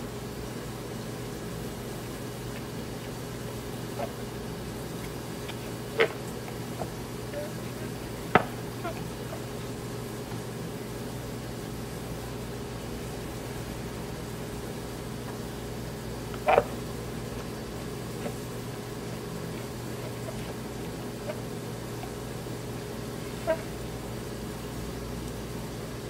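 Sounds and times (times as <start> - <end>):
steady mechanical hum: 0.0 - 26.0.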